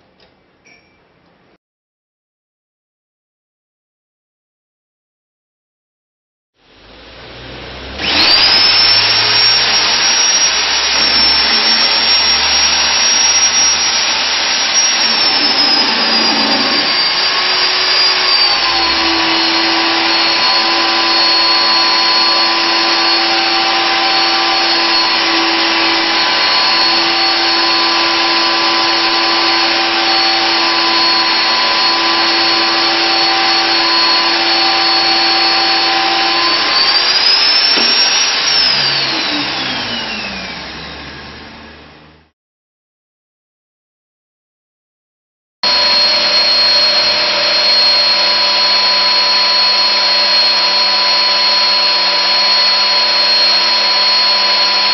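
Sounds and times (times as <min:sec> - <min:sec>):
drill cutting steel: 0:07.9 - 0:42.3, 0:45.6 - 0:54.9
magnetic drill motor whine: 0:07.9 - 0:42.3, 0:45.6 - 0:54.9.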